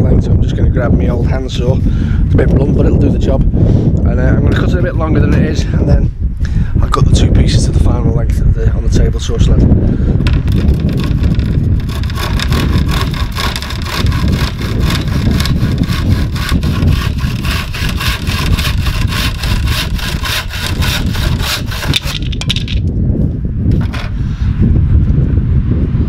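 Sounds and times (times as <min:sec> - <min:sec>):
handsaw cutting wood: 0:10.5 - 0:22.4.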